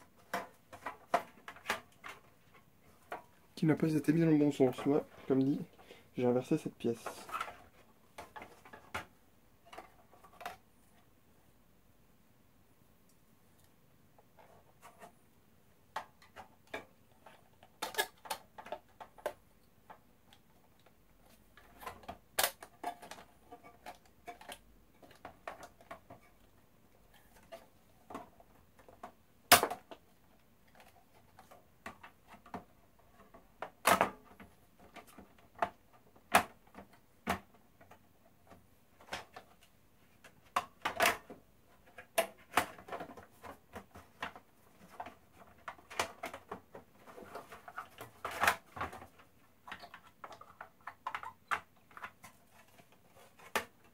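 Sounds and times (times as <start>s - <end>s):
plastic and metal parts clicking: 30.7s - 53.9s.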